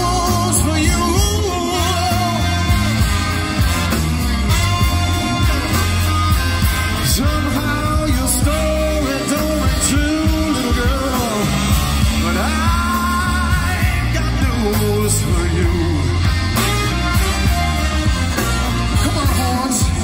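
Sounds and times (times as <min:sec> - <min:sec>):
person singing lead vocals: 0:00.0 - 0:03.6, 0:05.0 - 0:17.5
band playing rock and soul: 0:00.0 - 0:20.0.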